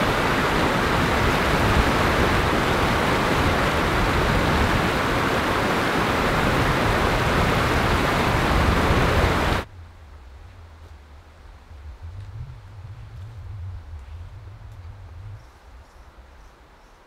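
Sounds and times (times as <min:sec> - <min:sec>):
stream rushing over rocks: 0:00.0 - 0:09.7
faint low hum: 0:09.6 - 0:17.0.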